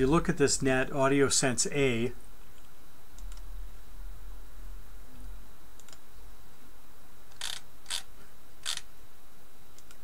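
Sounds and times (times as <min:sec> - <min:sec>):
computer controls clicking: 0:03.2 - 0:03.4, 0:05.8 - 0:06.0.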